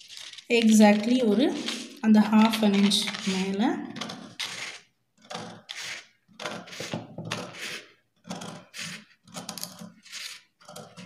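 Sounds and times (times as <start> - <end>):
scissors snipping paper: 0.0 - 7.8.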